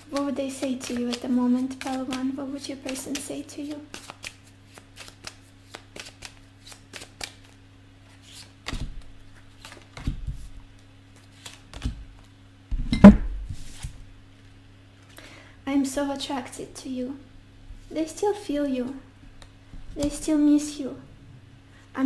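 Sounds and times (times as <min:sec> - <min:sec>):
cards being shuffled: 0:00.1 - 0:12.3, 0:13.5 - 0:14.0.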